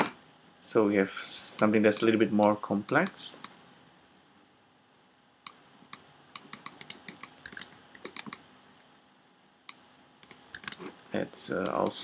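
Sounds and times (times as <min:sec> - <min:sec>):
keyboard keystroke clicks: 0:06.3 - 0:08.4, 0:10.2 - 0:11.0.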